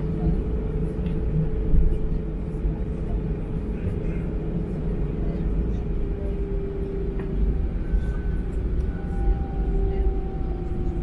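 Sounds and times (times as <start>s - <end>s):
aircraft engines low rumble: 0.0s - 11.0s
faint high whine: 6.0s - 11.0s.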